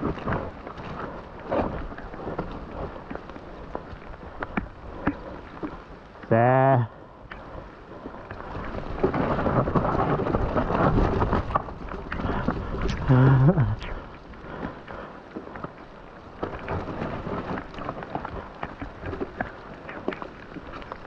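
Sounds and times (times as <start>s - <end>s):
bike tyres on slick mud: 0.0s - 21.0s
wind buffeting microphone: 7.0s - 21.0s.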